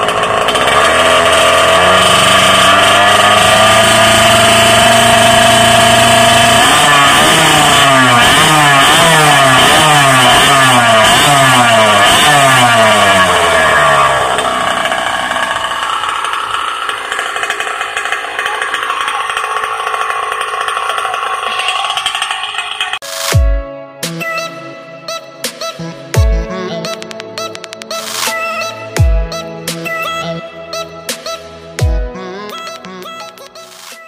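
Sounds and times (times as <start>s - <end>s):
two-stroke engine idling: 0.0s - 23.0s
two-stroke engine revving: 0.0s - 23.0s.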